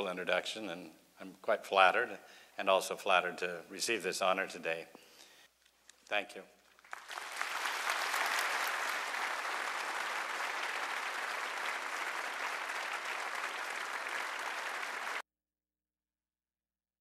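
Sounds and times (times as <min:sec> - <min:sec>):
audience applauding: 0:06.8 - 0:15.2.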